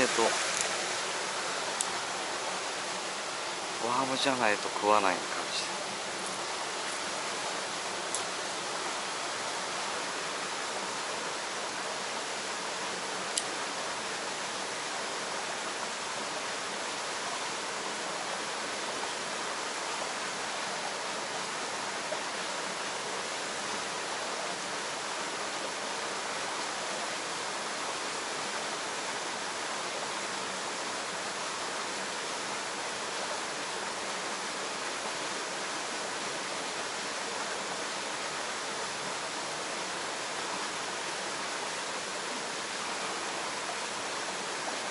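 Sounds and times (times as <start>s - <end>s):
small waterfall splashing into pool: 0.0s - 44.9s
light tick: 13.3s - 13.5s.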